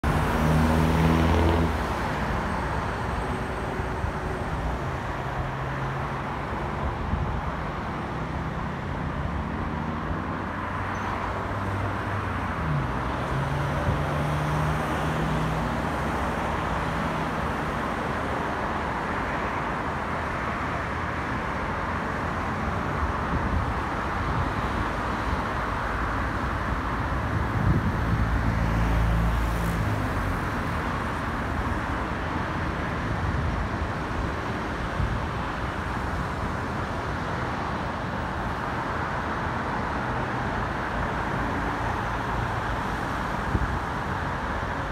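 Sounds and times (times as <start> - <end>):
road traffic: 0.0 - 44.9
vehicles passing: 0.0 - 44.9.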